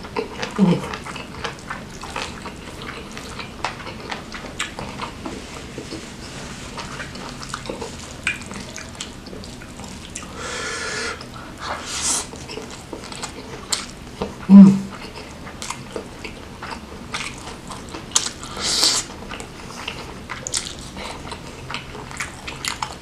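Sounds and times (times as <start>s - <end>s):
short breathy hiss: 10.4s - 12.3s.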